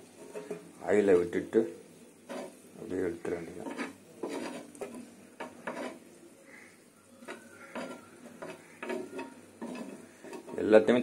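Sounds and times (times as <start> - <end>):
food set on metal plate: 0.0 - 1.5, 2.2 - 11.0
spoon scraping frying pan: 0.0 - 1.5, 2.1 - 11.0.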